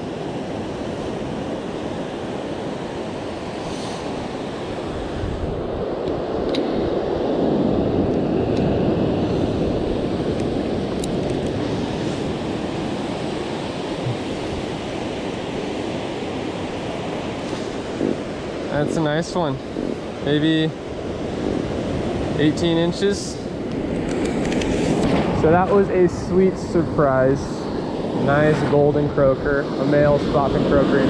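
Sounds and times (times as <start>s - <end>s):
ocean surf washing up: 0.0s - 31.0s
wind on the microphone: 0.0s - 31.0s
faint clicks: 23.7s - 24.7s.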